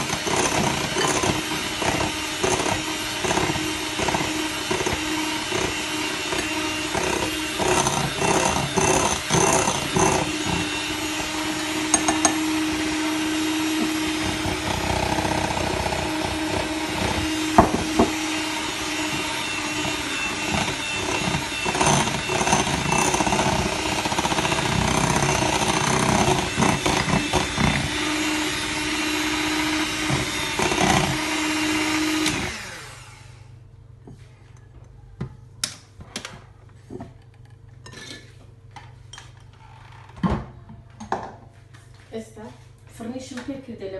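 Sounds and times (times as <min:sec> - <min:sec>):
electric mixer beating batter: 0:00.0 - 0:33.6
mixer knocks: 0:13.7 - 0:23.4.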